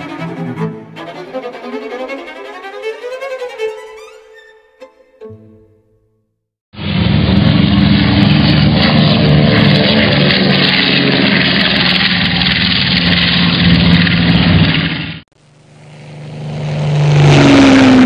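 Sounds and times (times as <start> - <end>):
propeller airplane engine running: 6.8 - 18.0.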